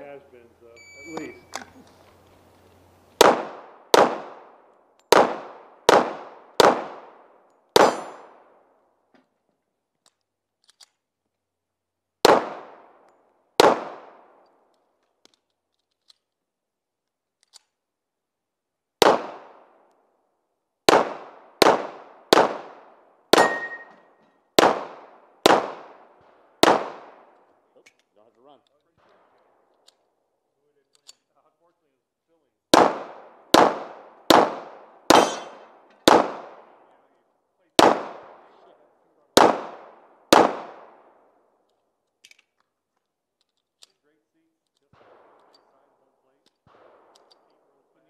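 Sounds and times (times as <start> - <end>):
pistol shots: 1.0 - 1.8, 3.2 - 8.6, 12.2 - 14.6, 19.0 - 19.9, 20.8 - 27.5, 32.7 - 41.4, 44.9 - 45.8, 46.6 - 47.7.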